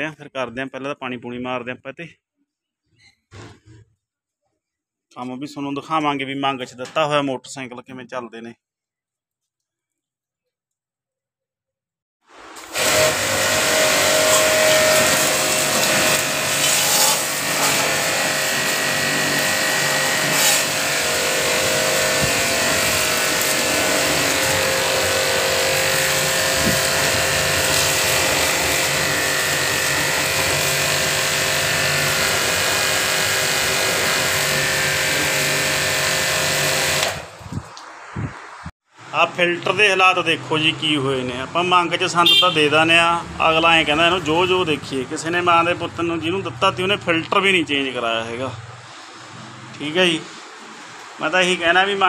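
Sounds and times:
pressure washer spraying: 12.4s - 37.4s.

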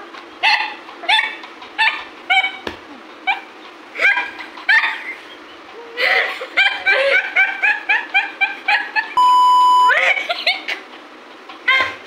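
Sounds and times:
women giggling: 4.6s - 10.9s.

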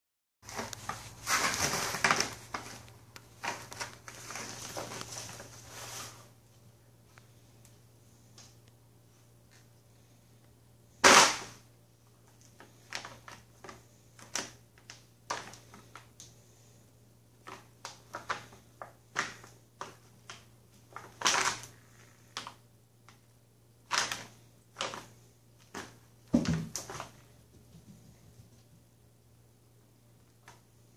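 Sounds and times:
plastic bag crinkling: 0.5s - 6.3s, 17.4s - 22.4s.

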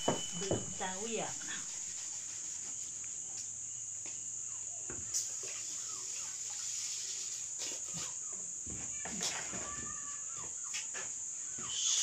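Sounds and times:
insects droning: 0.0s - 12.0s.

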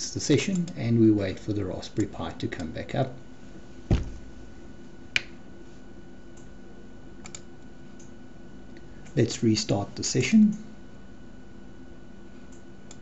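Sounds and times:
steady low hum: 0.0s - 13.0s
dull thump: 3.8s - 4.6s
computer clicks: 7.2s - 8.1s.

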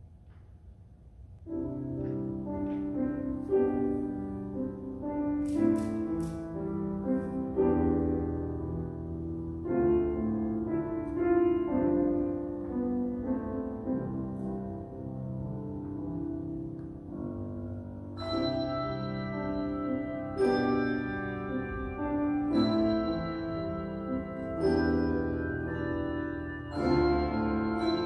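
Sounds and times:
handbell choir playing hymn: 18.2s - 28.0s.

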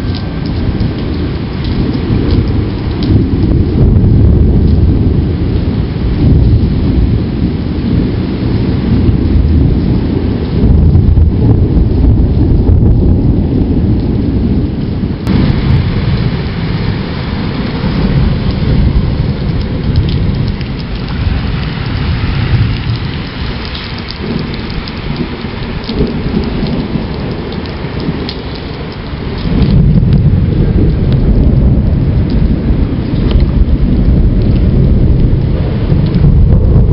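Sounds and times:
heavy rain pouring: 0.0s - 36.9s
rolling thunder: 0.0s - 36.9s
drip ticks: 19.5s - 21.1s, 33.1s - 33.5s.

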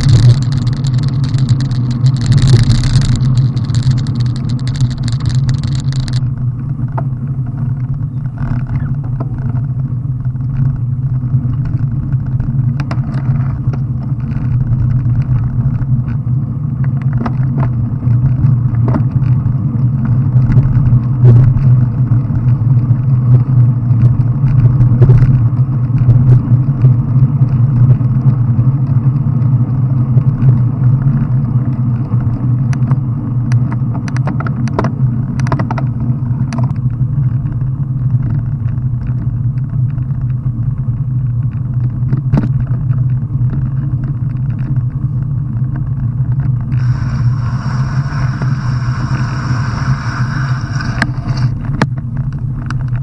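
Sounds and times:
clicks and knocks from bumps: 0.0s - 10.8s, 11.5s - 16.2s, 30.2s - 40.4s, 41.4s - 44.9s
bicycle road noise on wet tarmac: 0.0s - 53.0s
wind rumble: 0.0s - 53.0s.

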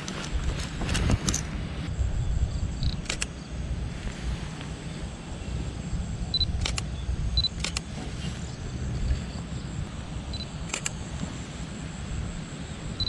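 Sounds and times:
low rumble: 0.0s - 11.0s
camera focus beep: 2.8s - 3.3s, 6.4s - 7.8s.

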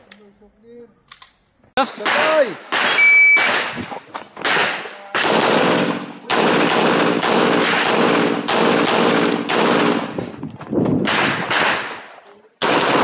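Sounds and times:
pistol shots echoing: 2.0s - 3.8s, 4.4s - 10.2s, 11.0s - 13.0s.

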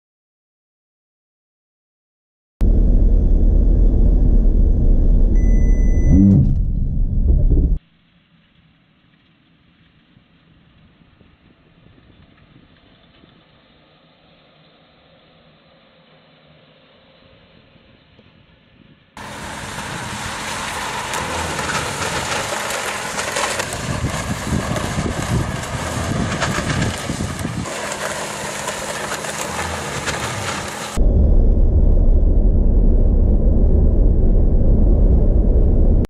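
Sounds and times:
car road and wind noise: 2.6s - 7.8s, 8.6s - 36.0s
wind buffeting microphone: 19.6s - 27.7s.

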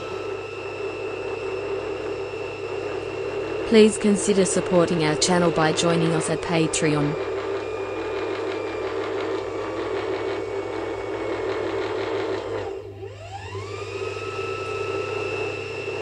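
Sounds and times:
rising tone held high: 0.0s - 11.3s.

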